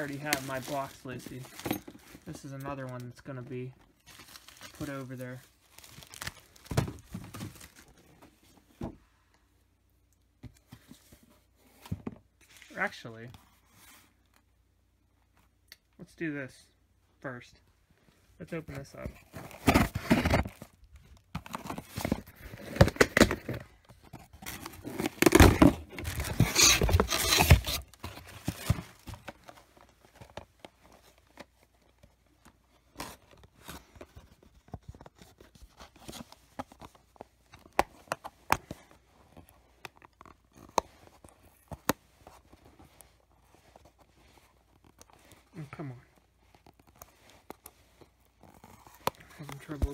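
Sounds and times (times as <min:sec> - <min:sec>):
packaging ripping and crinkling: 0:04.1 - 0:07.9, 0:24.3 - 0:29.4.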